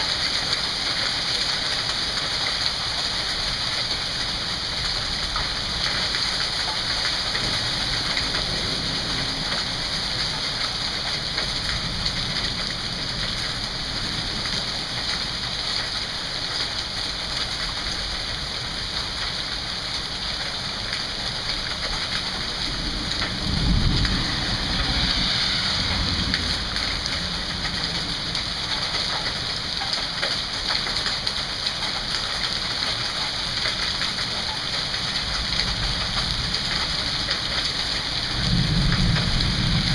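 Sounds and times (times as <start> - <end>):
rain and hail falling: 0.0 - 39.9
low rumble: 22.4 - 29.4.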